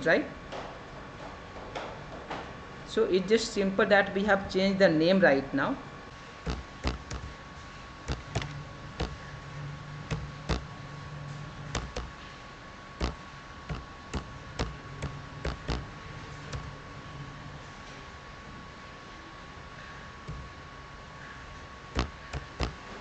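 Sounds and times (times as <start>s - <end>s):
faint steady hum: 0.0s - 23.0s
keyboard keys clicking: 6.5s - 7.3s, 8.1s - 9.2s, 10.1s - 10.7s, 11.7s - 12.1s, 13.0s - 16.7s, 22.0s - 22.8s.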